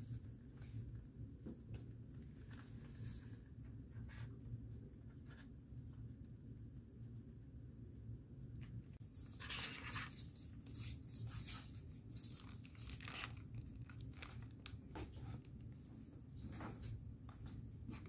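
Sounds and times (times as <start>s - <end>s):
cat crunching dry treats: 9.1s - 14.9s.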